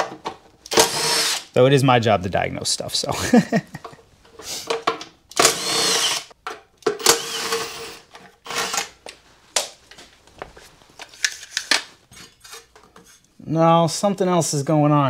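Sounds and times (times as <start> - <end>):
impact driver whirring: 0.7 - 1.5, 5.3 - 6.3, 7.0 - 9.0.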